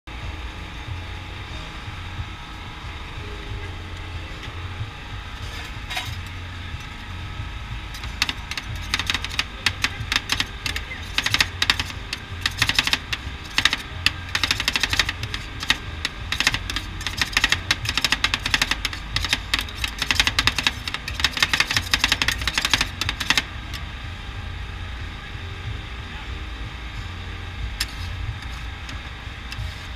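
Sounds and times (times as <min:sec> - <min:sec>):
metal spatulas chopping on steel plate: 0:08.0 - 0:23.5.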